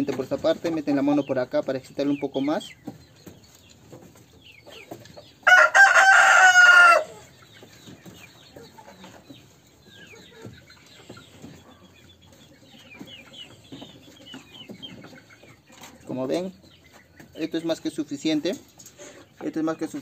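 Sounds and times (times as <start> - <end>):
rooster crowing: 5.4 - 7.2.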